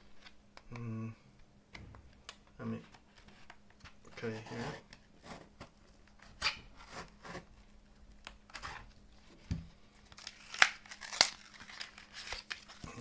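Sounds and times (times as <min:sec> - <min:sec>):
knife cutting plastic packaging: 0:10.1 - 0:13.0.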